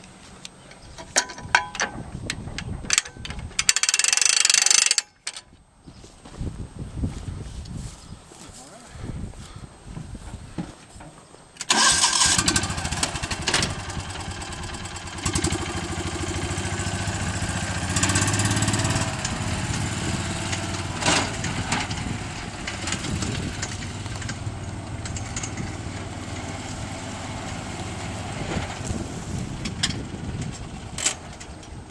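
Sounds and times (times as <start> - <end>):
utility vehicle engine running: 11.7 - 31.9.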